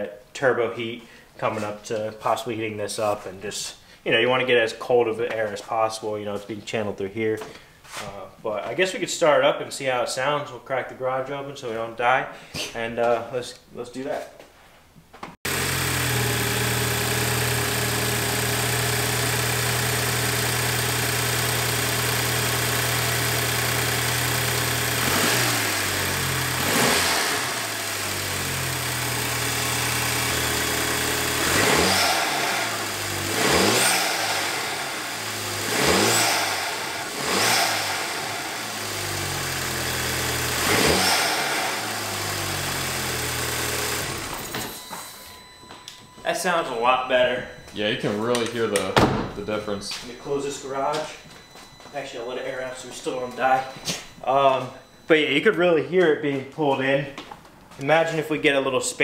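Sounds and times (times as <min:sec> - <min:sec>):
engine intake air noise: 0:15.5 - 0:45.3
car engine idling and revving: 0:15.5 - 0:45.5.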